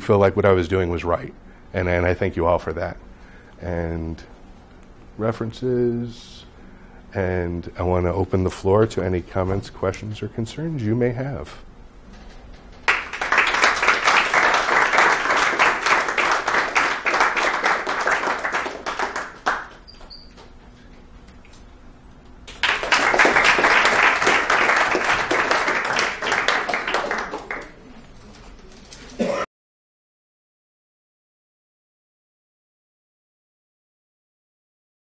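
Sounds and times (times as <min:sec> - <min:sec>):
audience applauding: 0:12.8 - 0:20.3, 0:22.5 - 0:27.9.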